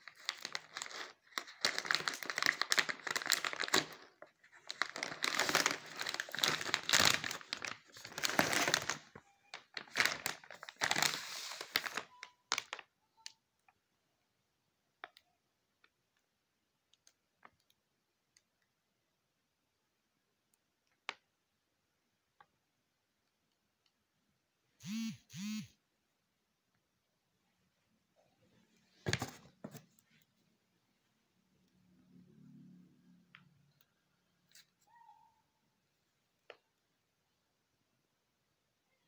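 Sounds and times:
foil bag crinkling: 0.0 - 12.8.

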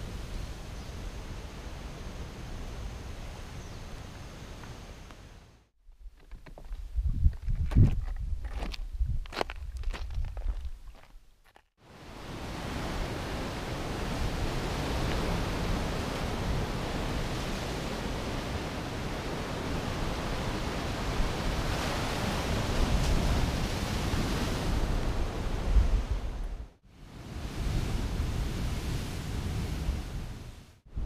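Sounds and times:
wind on microphone: 6.0 - 11.0, 12.0 - 31.0
ocean surf on rocky shore: 11.9 - 26.4, 27.0 - 30.7.

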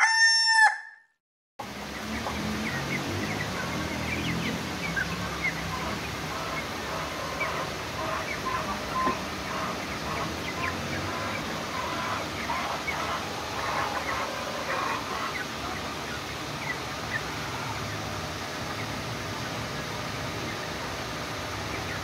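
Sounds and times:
chicks peeping and chirping: 1.6 - 22.0
steady background hiss: 1.6 - 22.0.

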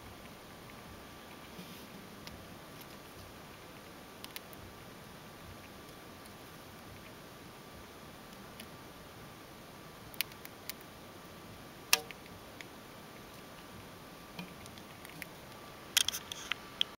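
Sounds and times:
hamster chewing: 0.0 - 11.0, 14.4 - 16.6.

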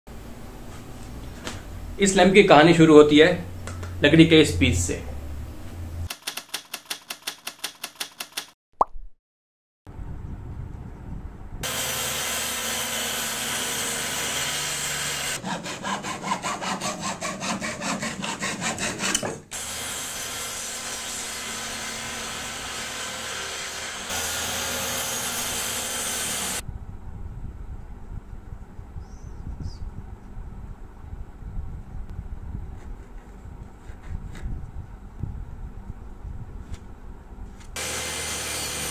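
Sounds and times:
table saw cutting wood: 11.6 - 26.6, 37.8 - 38.9.

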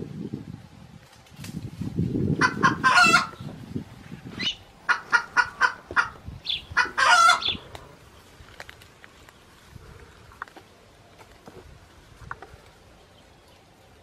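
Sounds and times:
leaves and brush rustling: 0.0 - 14.0
chicken clucking and cackling: 2.4 - 3.5, 4.4 - 7.9.

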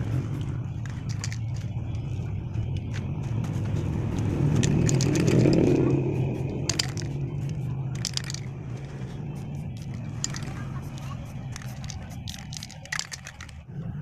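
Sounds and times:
vehicle engine rumbling: 0.0 - 14.0.

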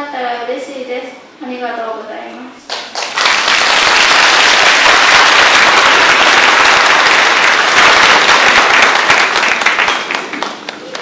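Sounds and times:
large audience applauding: 2.7 - 11.0.

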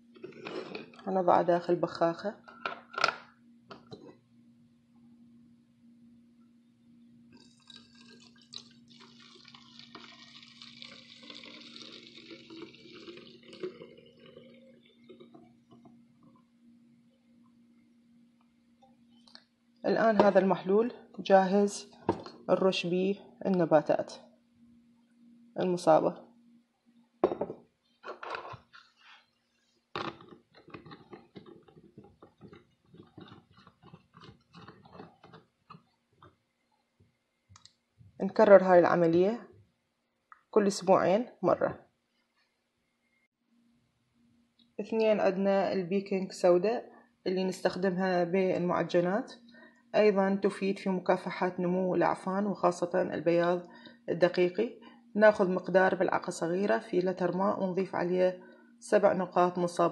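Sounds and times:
liquid pouring into plastic bottle: 7.4 - 16.4, 30.0 - 35.9.

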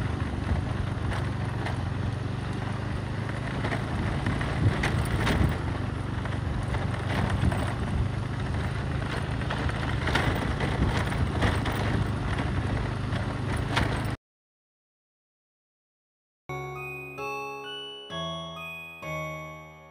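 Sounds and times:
motorcycle engine running: 0.0 - 14.2
road and wind noise: 0.0 - 14.2
knocks and rattles: 9.0 - 14.2.

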